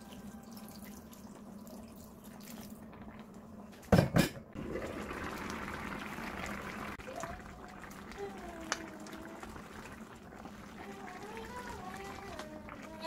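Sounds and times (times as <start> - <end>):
stew bubbling in a pan: 0.0 - 3.6, 4.5 - 13.0.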